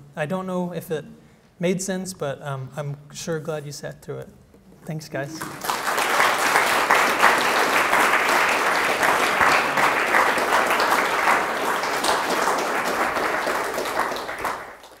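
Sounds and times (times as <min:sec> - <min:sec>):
audience applauding: 0:05.4 - 0:15.0.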